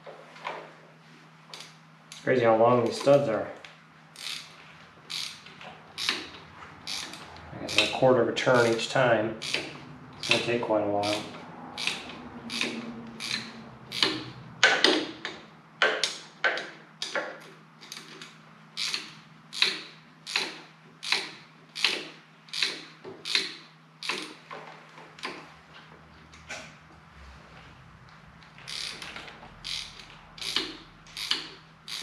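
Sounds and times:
wrench rasping metal clicks: 4.2s - 17.2s, 17.8s - 24.4s, 28.6s - 32.0s.

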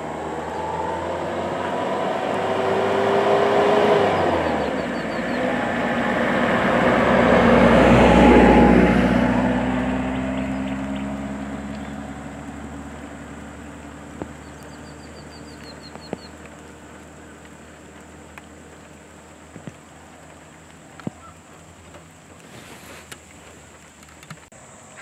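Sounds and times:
car engine driving off: 0.0s - 25.0s
bird trill: 4.1s - 5.6s, 14.4s - 16.4s.

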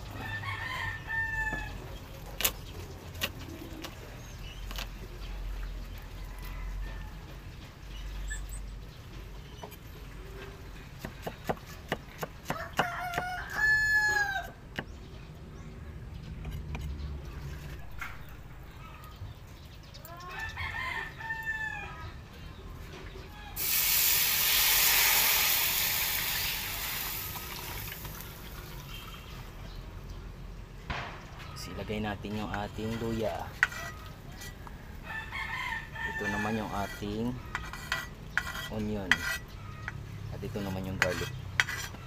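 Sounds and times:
rooster crowing: 0.0s - 1.9s, 6.0s - 7.4s, 12.5s - 14.6s, 20.3s - 22.1s, 34.7s - 37.0s
liquid sizzling in a hot wok: 23.6s - 28.7s.

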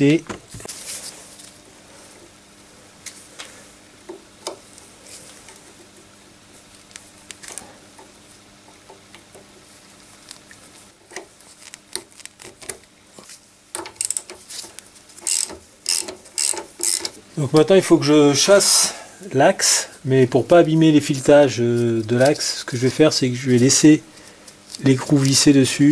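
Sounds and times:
small metallic clicks and scrapes: 13.8s - 17.2s.

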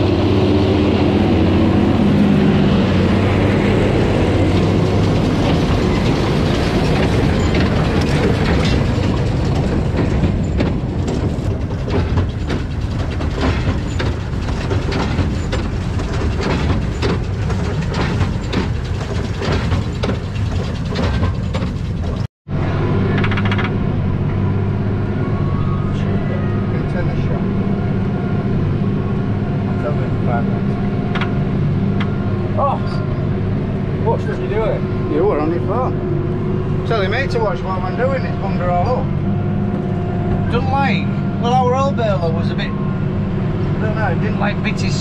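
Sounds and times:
tractor engine running under load: 0.0s - 22.3s
baler clattering and knocking: 4.1s - 22.3s.

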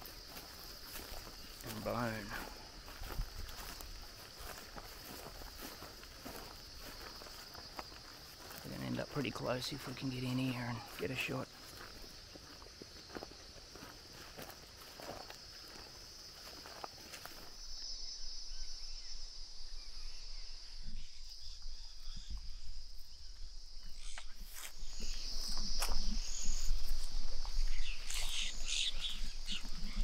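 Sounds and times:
footsteps crunching dry grass: 0.0s - 17.9s, 24.4s - 30.0s
high insect chorus: 0.0s - 30.0s.

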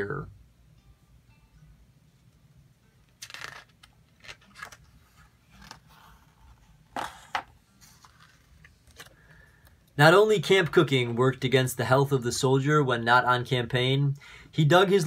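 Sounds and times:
book page turning: 3.1s - 9.2s.

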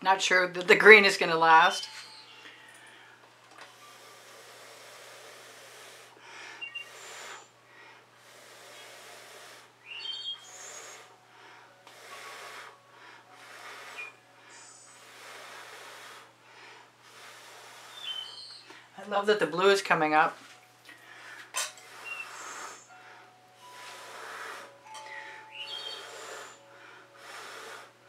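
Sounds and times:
breathy mouth puffs: 1.8s - 18.9s, 20.4s - 28.0s
faint whistle: 6.6s - 7.5s, 9.9s - 11.1s, 13.7s - 15.0s, 22.0s - 22.9s, 25.2s - 26.6s.

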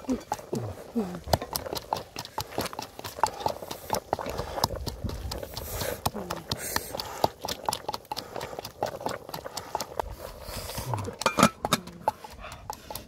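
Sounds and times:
water boiling: 0.0s - 13.0s
wood fire crackling: 0.0s - 13.0s
metal lid clanking on pot: 11.2s - 11.8s.

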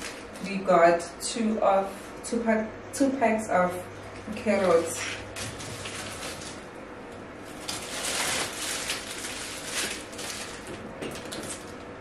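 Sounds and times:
plastic bags rustling: 0.0s - 0.6s, 4.3s - 6.8s, 7.4s - 11.8s.

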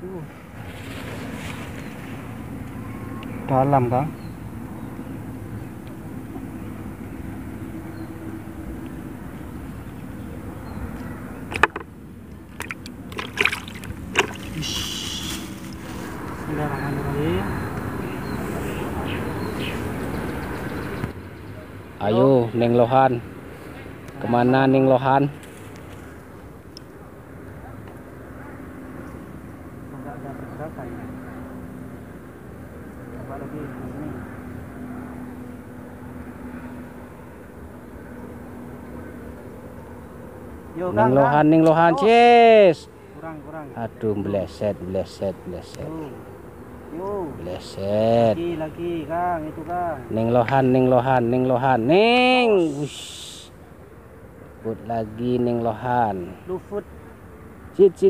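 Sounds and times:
low engine hum: 0.0s - 41.3s
water splashing in bucket: 12.5s - 15.2s.

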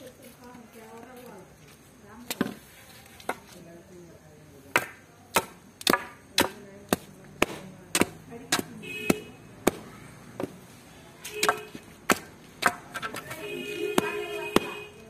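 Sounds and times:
sticks beating on dirt ground: 2.2s - 3.6s, 4.7s - 15.0s.

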